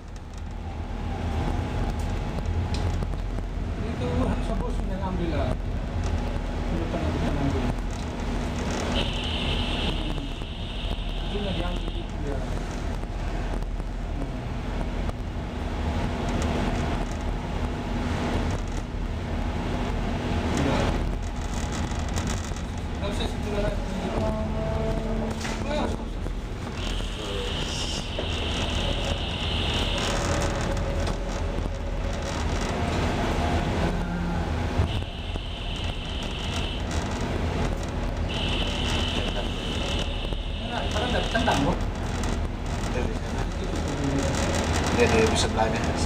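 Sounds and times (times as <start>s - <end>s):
ship engine drone: 14.0s - 46.0s.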